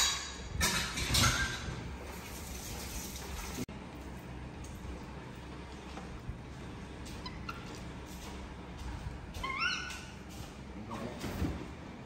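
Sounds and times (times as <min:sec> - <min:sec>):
baby monkey high-pitched squeal: 0:09.4 - 0:10.1.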